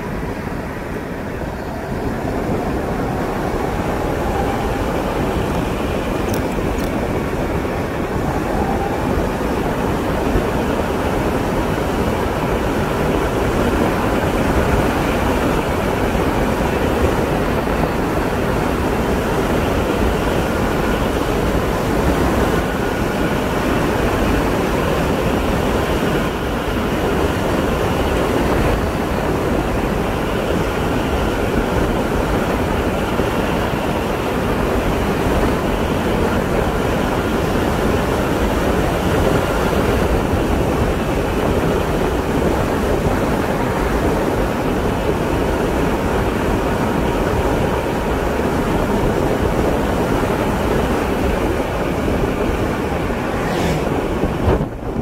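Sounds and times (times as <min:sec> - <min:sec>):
tyre and road noise: 0:00.0 - 0:26.3, 0:51.2 - 0:55.0
wind noise on microphone: 0:00.0 - 0:55.0.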